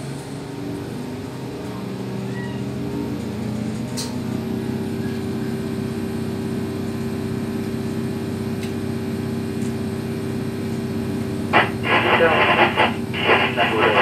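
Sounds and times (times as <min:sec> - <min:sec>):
electric train hum: 0:00.0 - 0:14.0.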